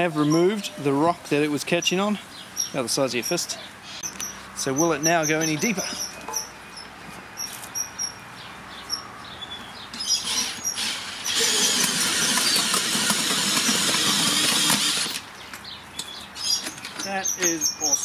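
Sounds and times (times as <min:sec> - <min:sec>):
auger scraping through dirt: 0:10.0 - 0:15.2
cordless drill running: 0:10.2 - 0:15.2.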